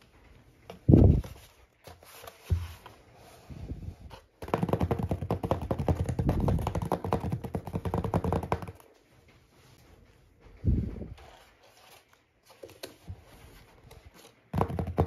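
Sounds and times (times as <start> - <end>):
fingertips tapping on cardboard box: 4.1 - 9.0, 14.5 - 15.0.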